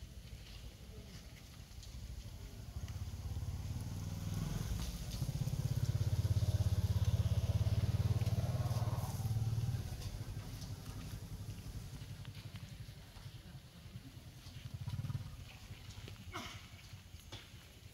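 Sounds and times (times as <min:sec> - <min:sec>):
pulsing engine rumble: 0:02.0 - 0:16.3.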